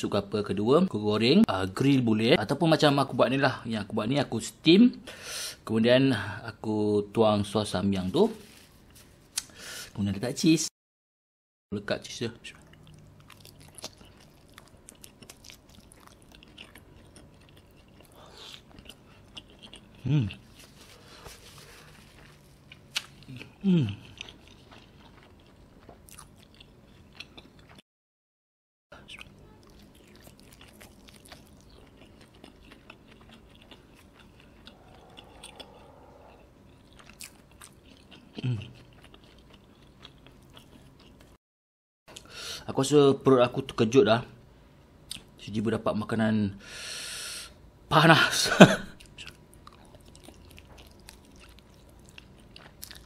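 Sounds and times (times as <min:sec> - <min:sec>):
person chewing with mouth smacks: 0:12.5 - 0:27.8, 0:29.0 - 0:41.4, 0:49.0 - 0:53.0.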